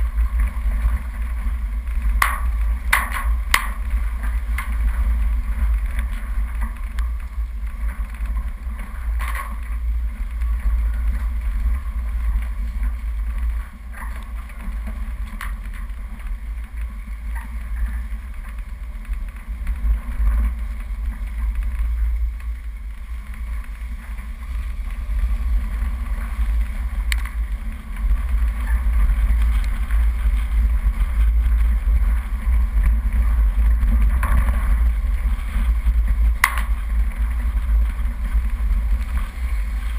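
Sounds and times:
off-road vehicle rumble: 0.0 - 39.9
wind buffeting microphone: 0.0 - 39.9.

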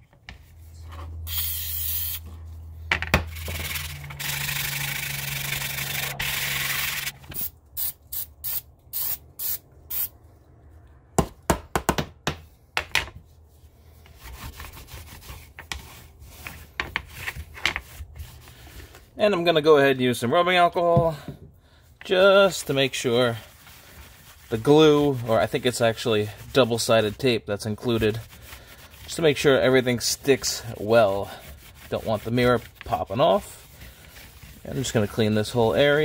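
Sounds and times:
aerosol can spraying: 1.3 - 2.2, 3.4 - 10.1
cloth rag rubbing: 22.1 - 36.0.

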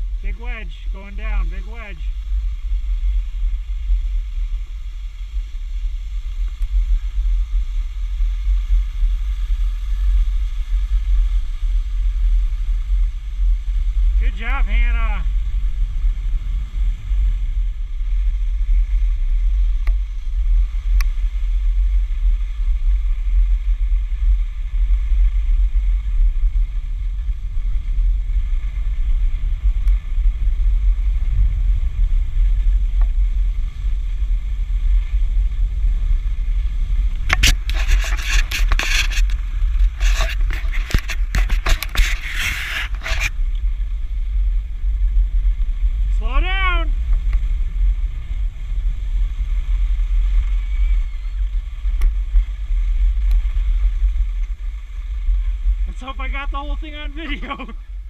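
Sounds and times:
skis gliding on snow: 0.0 - 58.0
skis scraping on snow: 0.0 - 58.0
wind rumble on microphone: 0.0 - 58.0.

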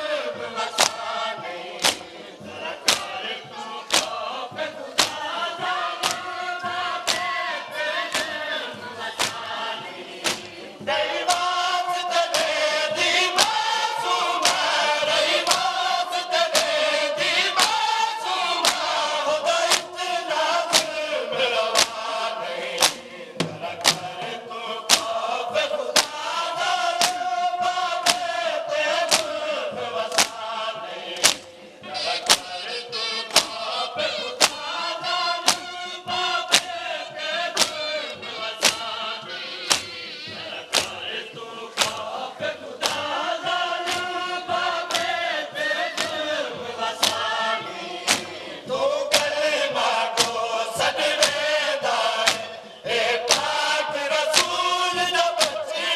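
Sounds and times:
men chanting a lament: 0.0 - 55.9
hands beating chests: 0.8 - 1.0, 1.8 - 2.0, 2.8 - 3.2, 3.9 - 4.2, 5.0 - 5.2, 6.0 - 6.3, 7.1 - 7.4, 9.2 - 9.5, 19.7 - 19.9, 21.8 - 22.0, 22.8 - 24.2, 24.9 - 25.2, 25.9 - 26.2, 27.0 - 27.2, 28.0 - 28.2, 29.1 - 29.3, 30.1 - 30.4, 31.2 - 34.8, 35.4 - 35.8, 36.5 - 36.7, 37.6 - 37.8, 38.6 - 39.0, 39.7 - 41.1, 41.8 - 42.1, 47.0 - 47.3, 48.1 - 48.4, 49.1 - 49.4, 52.2 - 52.5.

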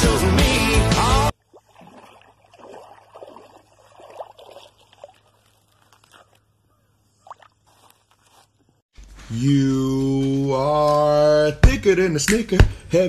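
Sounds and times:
water sloshing and splashing: 1.3 - 8.8.

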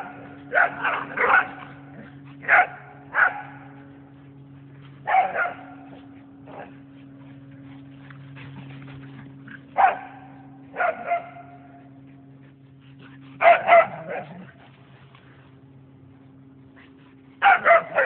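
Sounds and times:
dog barking: 0.0 - 1.7, 2.4 - 3.6, 5.1 - 5.7, 9.8 - 11.6, 13.4 - 14.4, 17.4 - 18.0
steady low hum: 0.0 - 18.0.

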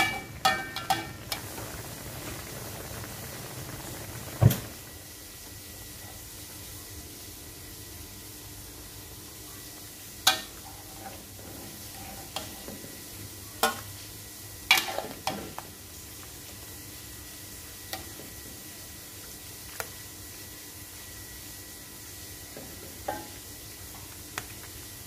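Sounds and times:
metal utensils clinking on wok: 0.0 - 1.2
low steady hiss: 0.0 - 25.0.

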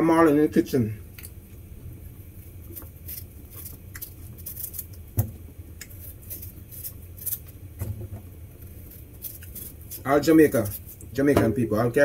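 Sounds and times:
low steady hum: 0.0 - 12.0
knife scraping yam skin: 2.4 - 7.7, 8.4 - 11.2.

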